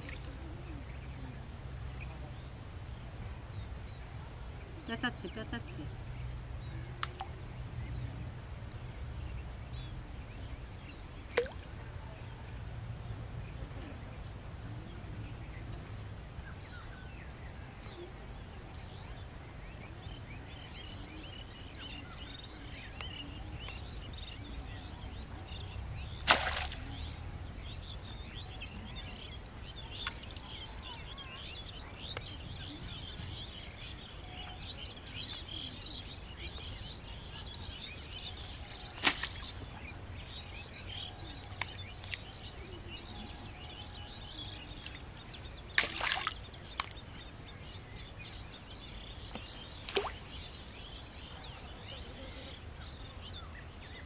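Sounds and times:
small birds chirping: 16.4s - 54.0s.

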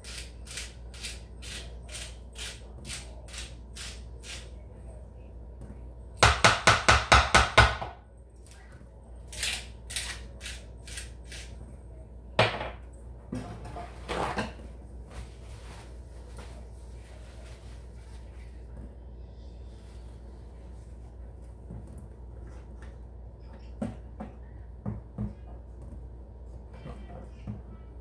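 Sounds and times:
sharp knocks in kitchen: 6.2s - 8.0s, 12.4s - 12.8s.

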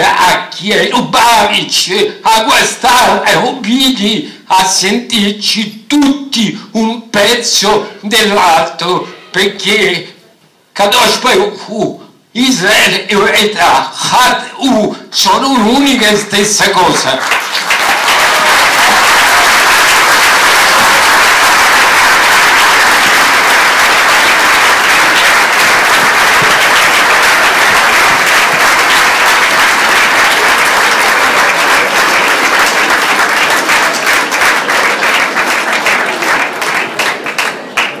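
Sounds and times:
audience applauding: 16.9s - 38.0s.

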